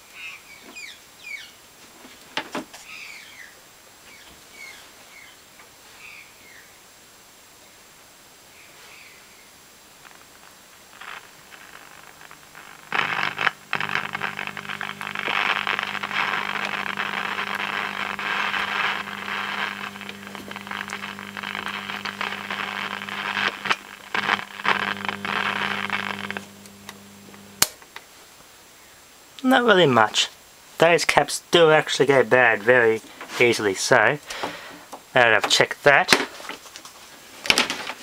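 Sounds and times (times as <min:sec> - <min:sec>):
radio static hiss: 0:03.4 - 0:36.6
steady low hum: 0:10.0 - 0:27.8
switch click: 0:26.6 - 0:27.8.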